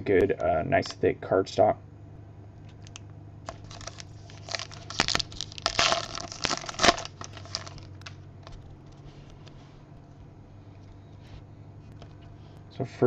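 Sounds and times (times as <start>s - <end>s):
wrapper tearing and crinkling: 2.8s - 8.6s.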